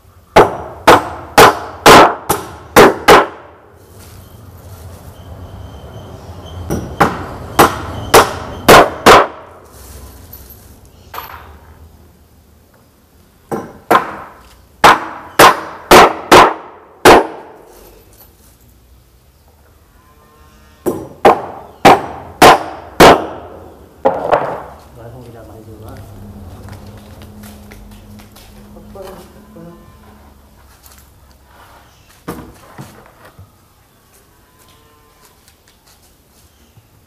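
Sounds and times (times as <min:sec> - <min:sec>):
hammer nailing wood: 0:00.3 - 0:03.5, 0:06.7 - 0:09.4, 0:13.5 - 0:17.5, 0:20.9 - 0:24.7.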